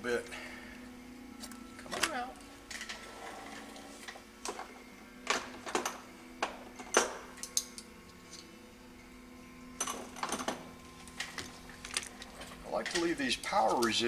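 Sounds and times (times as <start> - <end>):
steady low hum: 0.0 - 14.0
metal parts and tools clicking: 6.9 - 8.4, 11.2 - 14.0.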